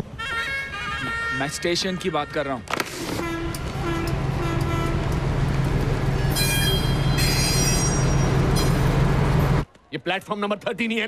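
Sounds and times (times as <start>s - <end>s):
train rumbling: 2.9s - 9.7s
metallic wheel squeals: 6.2s - 9.0s.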